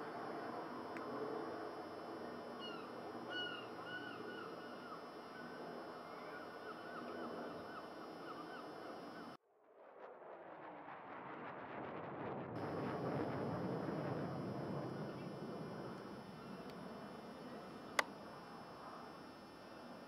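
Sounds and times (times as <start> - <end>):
bird cries: 2.5 - 9.4
steady rushing noise: 10.4 - 19.3.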